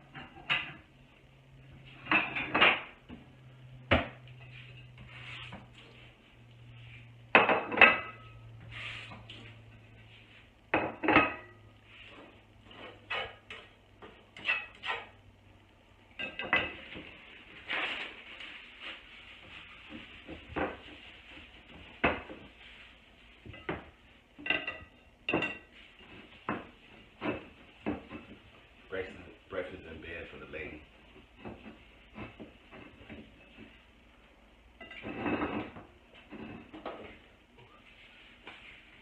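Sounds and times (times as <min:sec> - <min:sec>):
plates and spatula clinking on pan: 0:02.0 - 0:03.0, 0:07.3 - 0:08.4, 0:10.7 - 0:11.6, 0:12.2 - 0:15.1, 0:16.2 - 0:17.1, 0:23.4 - 0:28.4, 0:34.8 - 0:37.2.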